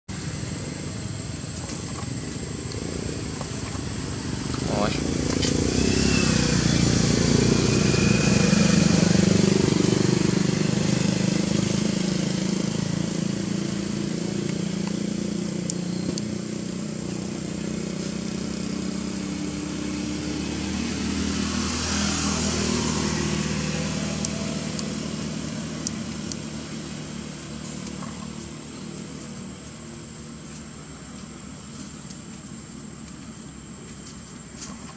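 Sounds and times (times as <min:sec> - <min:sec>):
vehicle engines humming: 0:00.1 - 0:34.9.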